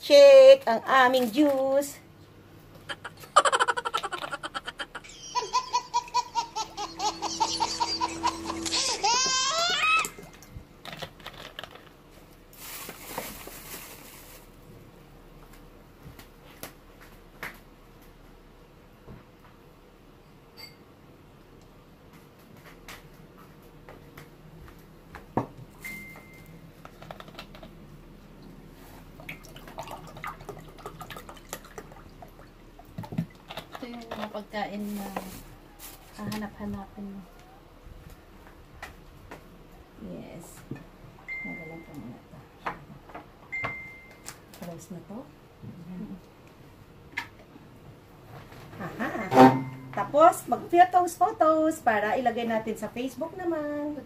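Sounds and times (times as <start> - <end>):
person laughing: 2.9 - 10.0.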